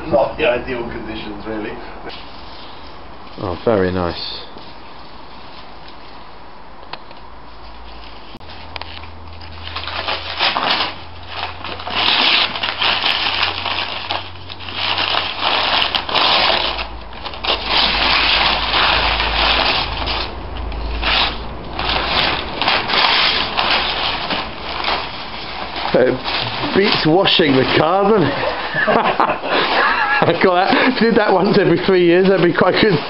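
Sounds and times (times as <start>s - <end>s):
masking paper and tape tearing: 7.9s - 33.0s.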